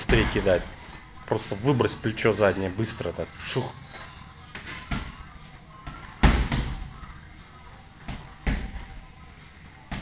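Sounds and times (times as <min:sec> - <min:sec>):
boxing gloves hitting punching bag: 0:04.9 - 0:07.0, 0:08.0 - 0:09.0.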